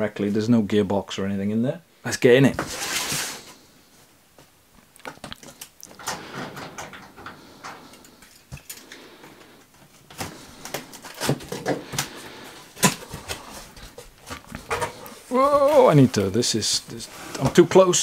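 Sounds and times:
cardboard box scraping and rubbing: 2.6 - 3.6.

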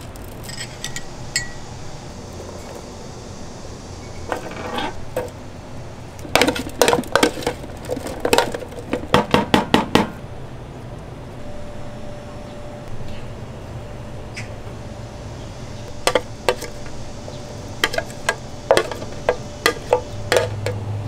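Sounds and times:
metal and dishes clinking: 17.8 - 20.8.

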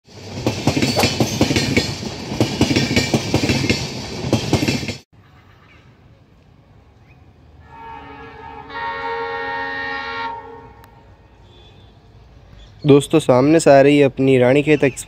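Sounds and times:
train rumble: 0.1 - 5.0
train wheels clacking over rail joints: 0.3 - 5.0.

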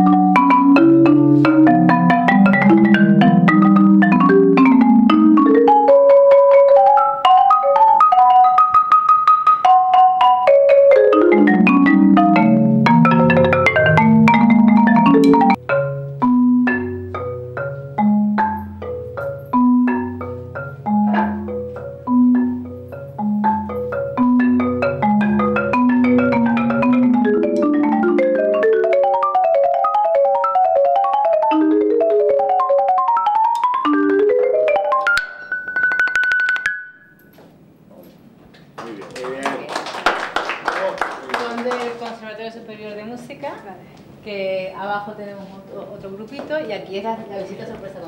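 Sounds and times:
solo marimba: 0.0 - 37.3.

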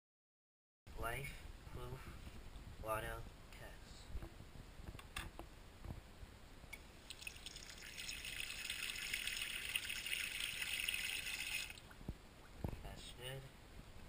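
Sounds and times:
tap water running and splashing: 7.1 - 11.8.

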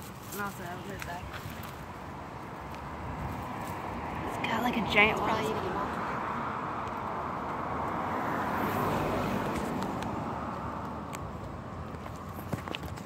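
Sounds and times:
dry leaves crackling: 0.0 - 3.9
passing vehicle road noise: 0.0 - 13.0.

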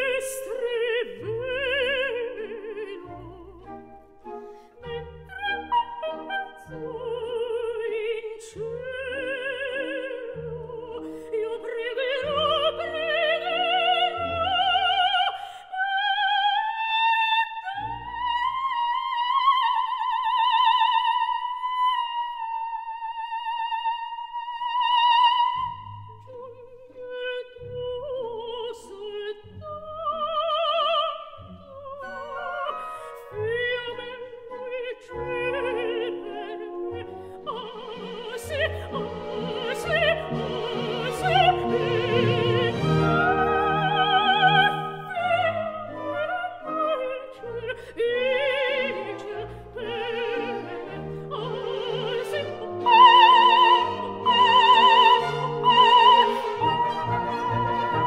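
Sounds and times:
orchestra playing: 0.0 - 15.3, 31.7 - 58.0
soprano singing opera: 0.0 - 58.0.

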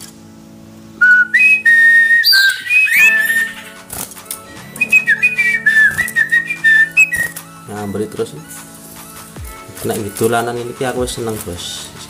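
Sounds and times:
songbird whistling: 1.0 - 3.9, 4.7 - 7.4.

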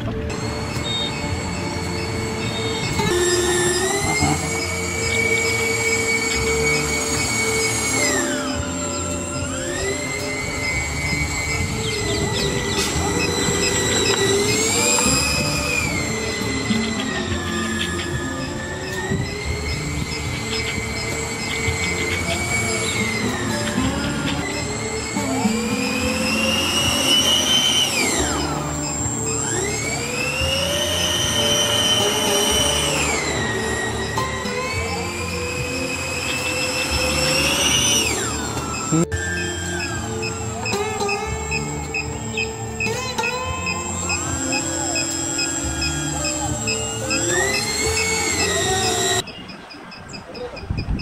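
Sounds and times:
small tyres rumbling on road: 0.0 - 8.5
small electric motor whine: 0.0 - 51.0.

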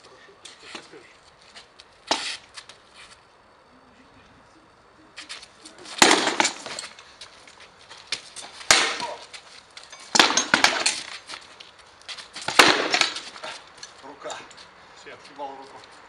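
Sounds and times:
swords striking wooden shields: 5.9 - 6.9, 8.5 - 9.3, 10.0 - 11.1, 12.4 - 13.5.

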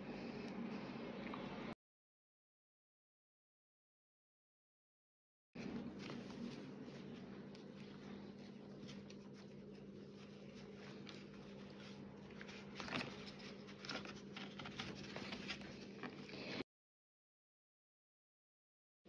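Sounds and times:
hands rustling cord: 5.6 - 16.6
steady low hum: 5.6 - 16.6.

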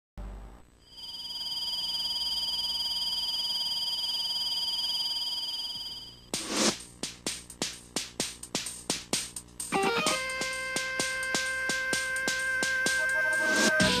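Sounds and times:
theme music: 9.7 - 14.0.

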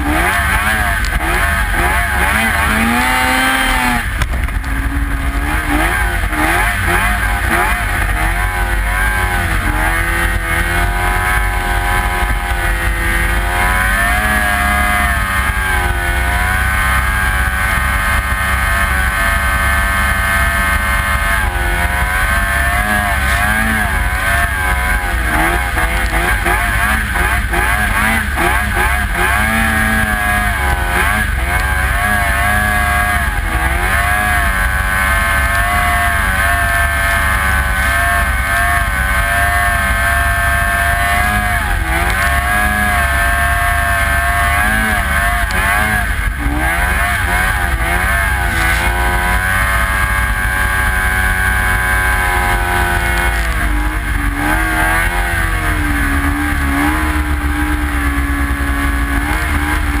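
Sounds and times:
snowmobile engine revving: 0.0 - 60.0
low rumble: 0.7 - 33.8.

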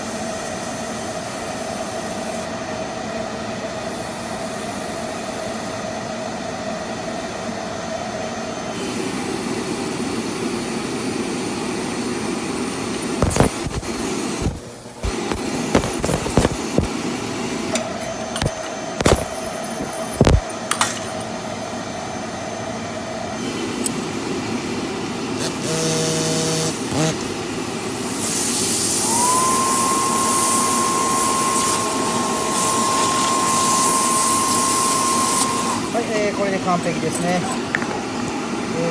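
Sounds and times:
spotting equipment hissing: 13.0 - 17.0, 18.4 - 20.4, 27.8 - 37.7
sharp clicks and taps: 13.2 - 16.9, 20.2 - 20.4
rushing hiss with whistle: 28.0 - 36.4.

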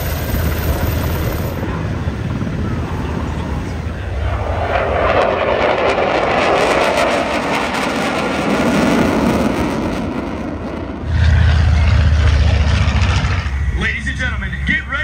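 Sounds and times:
jet engine rushing: 0.0 - 15.0
propeller plane droning: 0.0 - 15.0.

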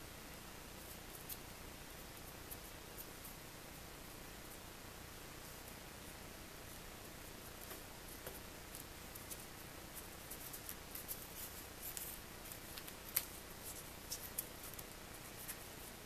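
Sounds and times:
paper snap: 11.9 - 13.4.

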